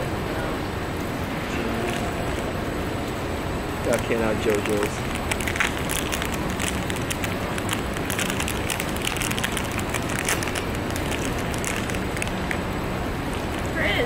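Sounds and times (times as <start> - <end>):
steady background noise: 0.0 - 14.0
foil wrapper crinkling and tearing: 1.7 - 2.6, 3.8 - 13.8.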